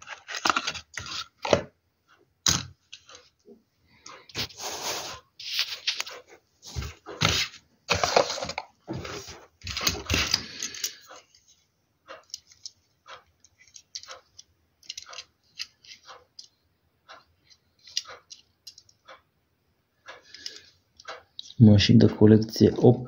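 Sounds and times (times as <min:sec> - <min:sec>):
rustling and crinkling: 0:00.0 - 0:01.7, 0:02.9 - 0:11.6.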